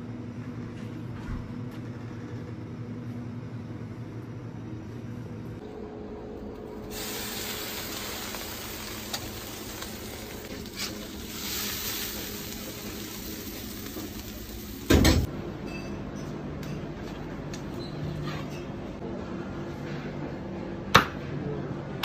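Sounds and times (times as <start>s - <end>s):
fish sizzling on a grill: 6.9s - 15.3s.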